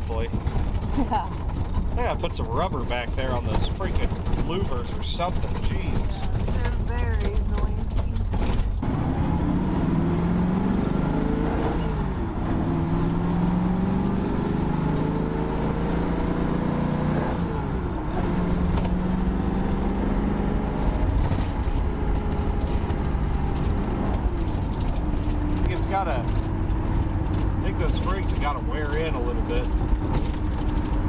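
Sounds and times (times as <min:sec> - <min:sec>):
road rumble: 0:00.0 - 0:31.0
car engine accelerating through gears: 0:07.8 - 0:31.0.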